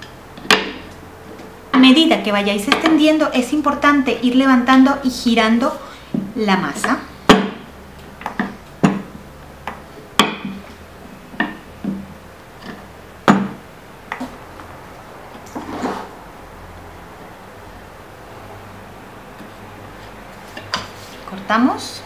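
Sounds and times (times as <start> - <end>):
knocks on hard board: 7.3 - 7.6, 8.2 - 9.1, 10.2 - 10.6, 13.3 - 13.6.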